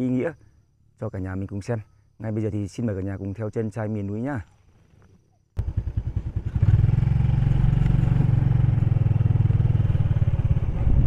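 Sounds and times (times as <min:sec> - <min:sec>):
motorcycle engine running: 0:05.6 - 0:11.0.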